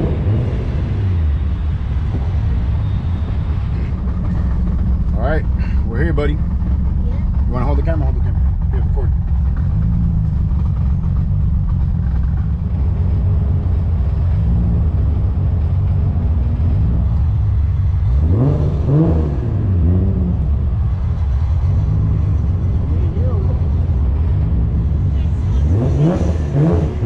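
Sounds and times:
car engine revving: 0:00.0 - 0:27.0
road noise: 0:00.0 - 0:27.0.

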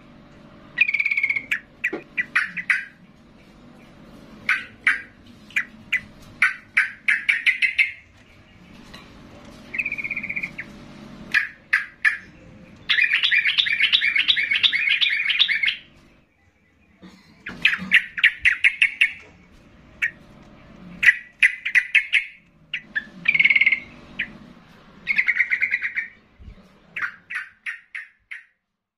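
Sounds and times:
bird rapid chattering song: 0:00.8 - 0:03.0, 0:03.7 - 0:08.9, 0:09.6 - 0:20.2, 0:21.0 - 0:28.6
bird trill: 0:00.8 - 0:03.0, 0:04.5 - 0:08.8, 0:09.7 - 0:16.8, 0:17.4 - 0:19.4, 0:21.0 - 0:24.4, 0:25.0 - 0:26.2, 0:27.0 - 0:28.6.

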